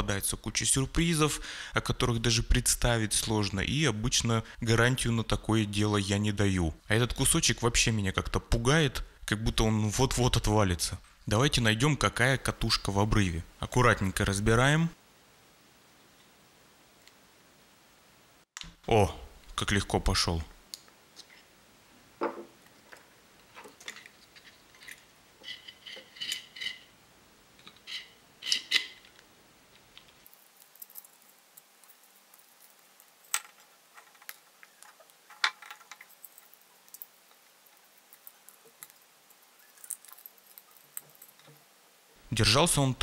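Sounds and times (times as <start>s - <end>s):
small parts clicking and clinking: 22.7s - 26.9s, 27.6s - 29.2s, 29.8s - 41.6s.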